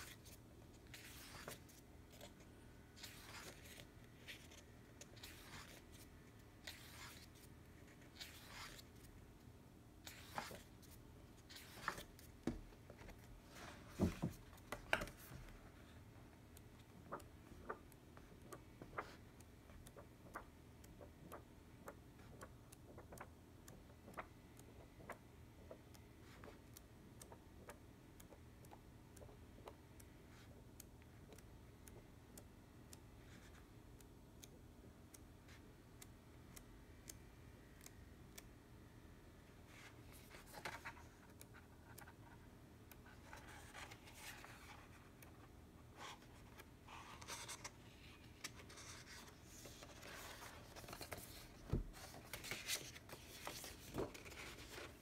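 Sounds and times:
book pages turning: 0.0s - 9.1s, 10.0s - 15.5s, 39.8s - 42.3s, 43.2s - 55.0s.

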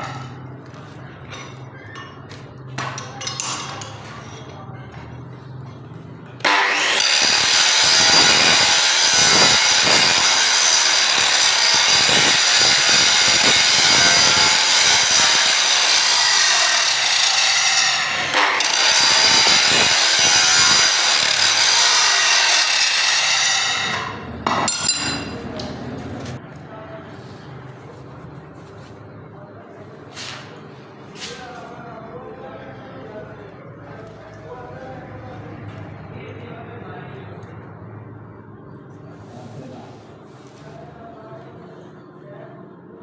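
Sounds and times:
angle grinder grinding steel: 6.5s - 24.1s.

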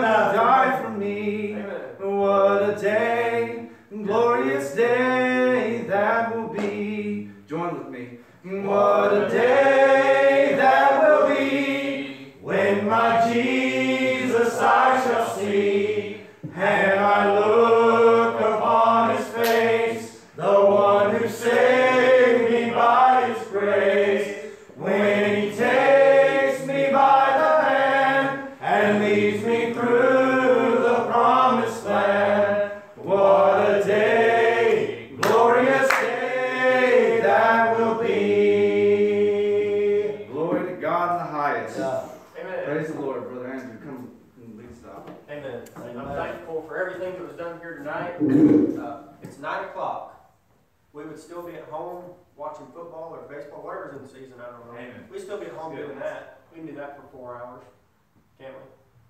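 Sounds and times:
men singing a hymn: 0.0s - 40.9s.

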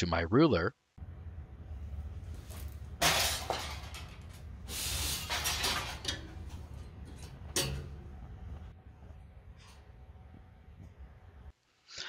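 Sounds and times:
steady low hum: 0.8s - 11.8s
metal rule scraping on steel: 2.4s - 8.0s.

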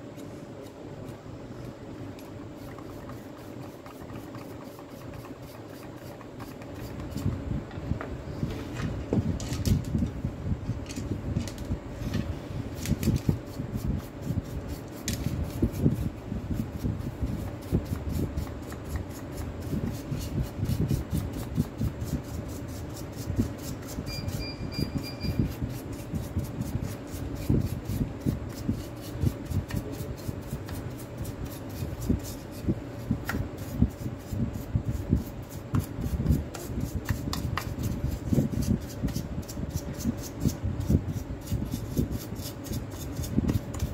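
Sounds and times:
faint steady hum: 0.0s - 43.9s
wire brush scrubbing plastic: 2.6s - 7.3s.

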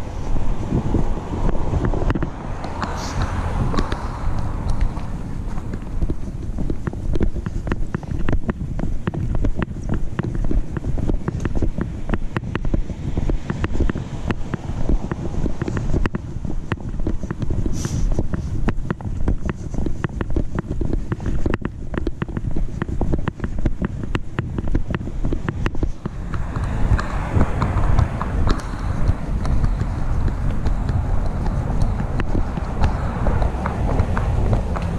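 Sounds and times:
rubbing on microphone: 0.0s - 34.9s
wind rumble on microphone: 0.0s - 34.9s
broad hiss: 2.8s - 3.4s
camera knocks from walking: 3.7s - 34.9s.

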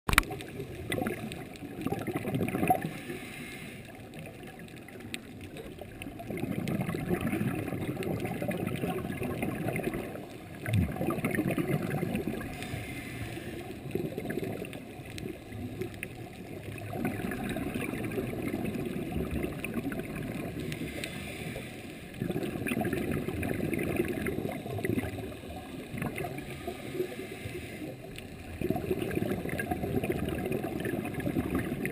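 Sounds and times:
underwater bubbling and gurgling: 0.1s - 31.9s.

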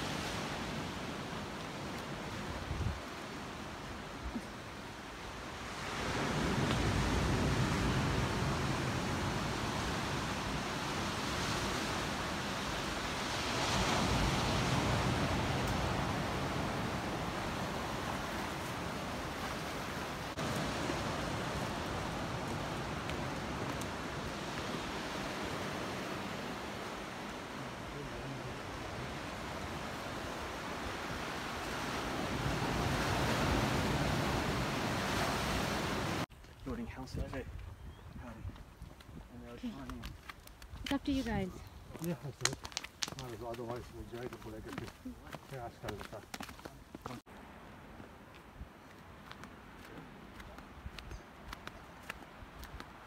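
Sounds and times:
wind rumbling on microphone: 0.0s - 4.6s, 5.6s - 41.0s
sea waves washing up a beach: 0.0s - 37.1s.

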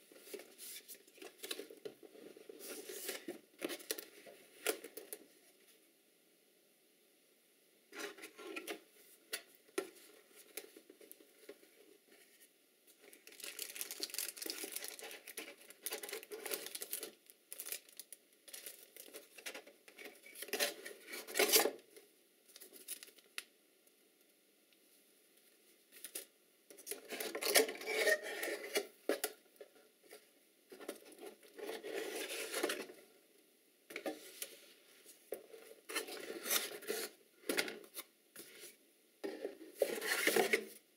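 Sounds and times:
cardboard and paper rustling: 0.1s - 5.3s, 9.8s - 21.8s, 30.7s - 33.0s.

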